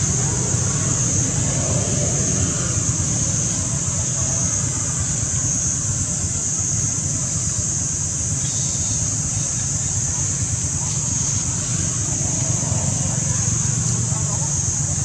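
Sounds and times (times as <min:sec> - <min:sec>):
constant high-pitched hiss: 0:00.0 - 0:15.0.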